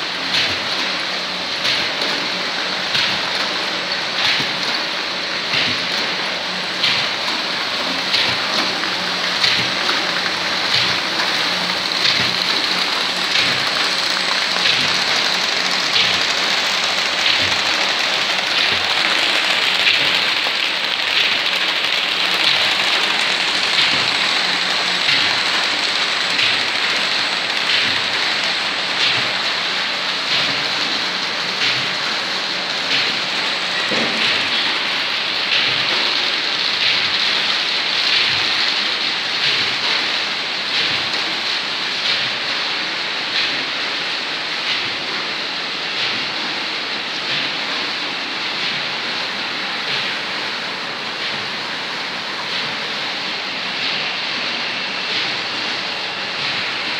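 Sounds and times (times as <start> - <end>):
paper machine rushing clatter: 0.0 - 46.0
regular machine beat: 0.1 - 44.2.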